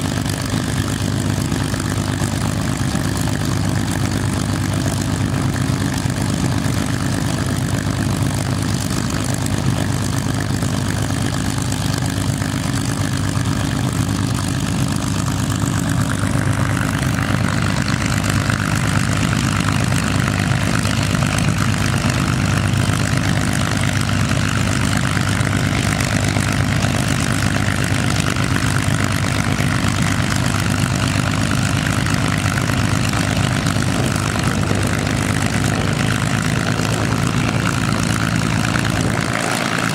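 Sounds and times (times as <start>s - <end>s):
propeller plane engines idling: 0.0s - 39.9s.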